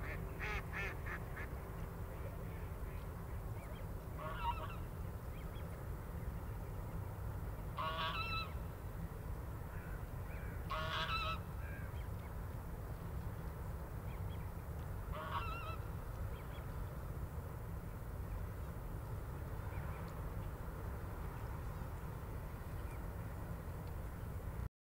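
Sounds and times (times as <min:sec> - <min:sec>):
goose honking: 0:04.2 - 0:04.8, 0:07.8 - 0:08.5, 0:10.7 - 0:11.4, 0:15.1 - 0:15.8.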